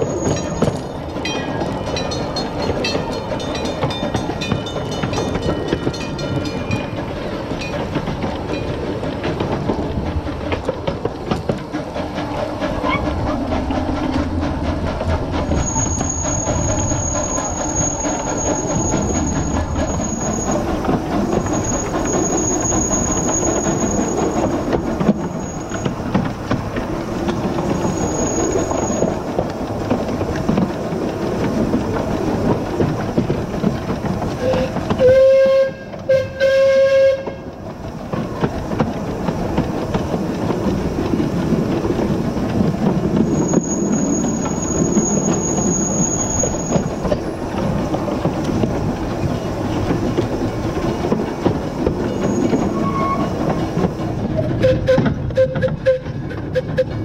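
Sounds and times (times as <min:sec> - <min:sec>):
high wheel squeal: 0:00.0 - 0:07.0, 0:15.4 - 0:26.1, 0:27.3 - 0:29.2, 0:43.1 - 0:48.8, 0:51.7 - 0:57.0
steam engine rumble: 0:00.0 - 0:57.0
wheels clacking over rail joints: 0:00.0 - 0:57.0
steam whistle blasts: 0:34.4 - 0:37.4, 0:54.6 - 0:57.0.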